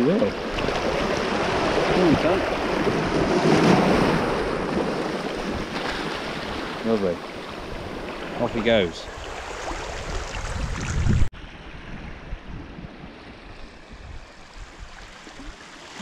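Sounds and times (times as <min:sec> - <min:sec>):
waves washing over pebbles: 0:00.2 - 0:11.3.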